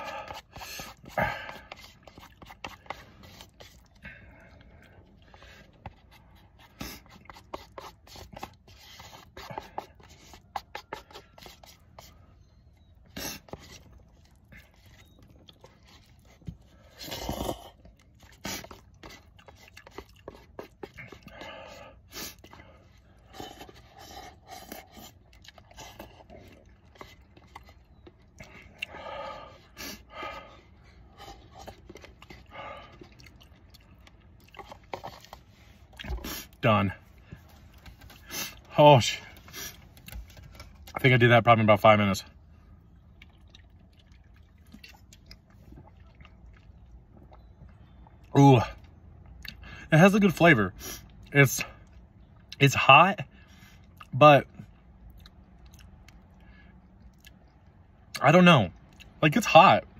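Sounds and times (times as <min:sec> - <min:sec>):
chopsticks scraping paper cup: 0:00.0 - 0:04.0, 0:05.3 - 0:14.0, 0:14.6 - 0:28.2
chewing: 0:00.0 - 0:36.6, 0:42.8 - 0:49.6, 0:53.7 - 0:58.2, 0:58.8 - 0:59.2
slurping noodles: 0:00.0 - 0:36.7.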